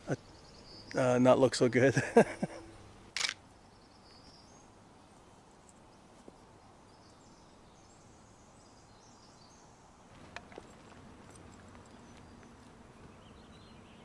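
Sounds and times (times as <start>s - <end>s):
sharp click: 3.2s - 3.4s.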